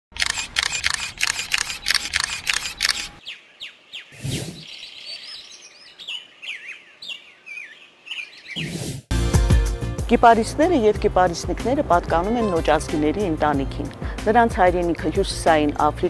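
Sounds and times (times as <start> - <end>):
rapid clicking: 0.1 - 3.2
birds chirping: 1.1 - 8.8.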